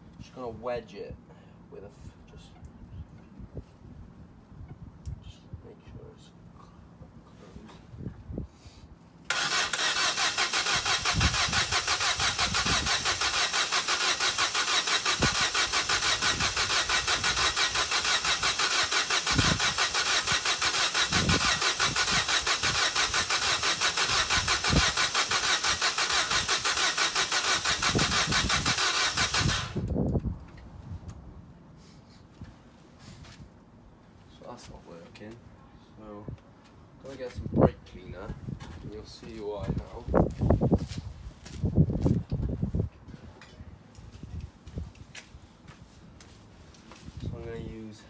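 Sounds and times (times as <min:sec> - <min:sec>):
starter motor cranking engine: 0:09.3 - 0:30.0.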